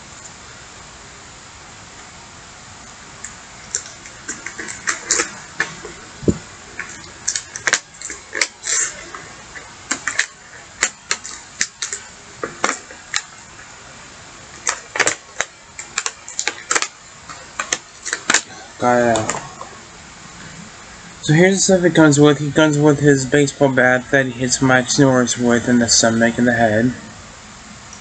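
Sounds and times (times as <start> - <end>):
plastic bag crinkling: 3.6 - 13.8, 14.4 - 19.8.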